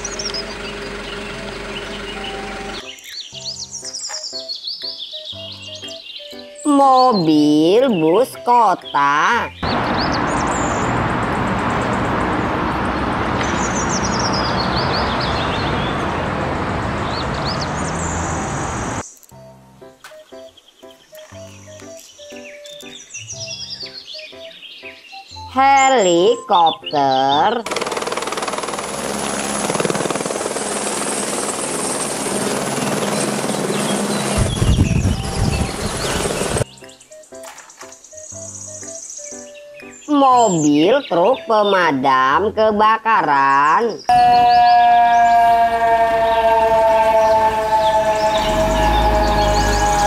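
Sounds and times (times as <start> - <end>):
helicopter rotor chopping: 0.0 - 2.8, 27.6 - 36.7
bus driving past: 0.0 - 3.0, 9.6 - 19.0, 27.7 - 36.7, 44.1 - 50.0
birds chirping: 0.0 - 27.7, 31.8 - 50.0
deep rumble: 34.3 - 36.6.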